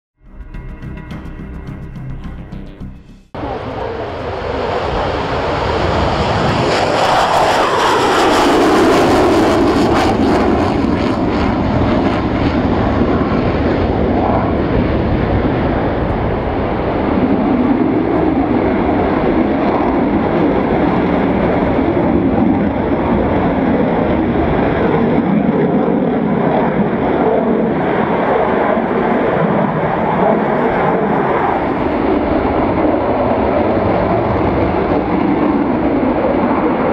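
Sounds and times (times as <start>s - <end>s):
jet engine roar: 3.3s - 36.9s.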